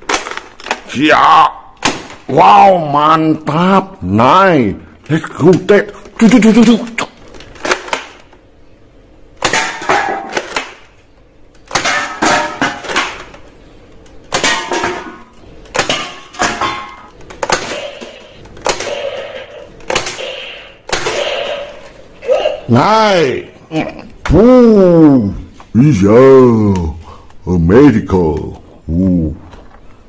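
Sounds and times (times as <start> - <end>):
cans and plastic targets clattering: 11.7 - 13.4, 14.3 - 20.2
toy dart blaster firing: 17.4 - 21.8.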